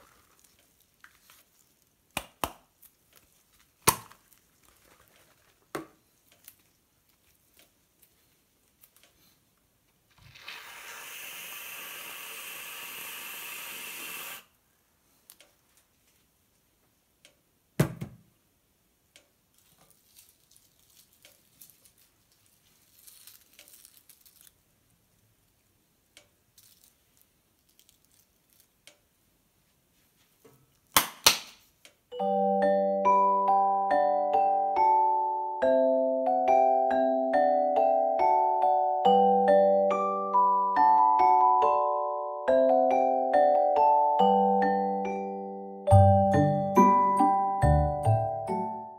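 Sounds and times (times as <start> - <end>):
handling sounds: 0.0 - 9.4, 19.5 - 25.0, 26.5 - 29.0
aerosol can spraying: 10.3 - 14.5.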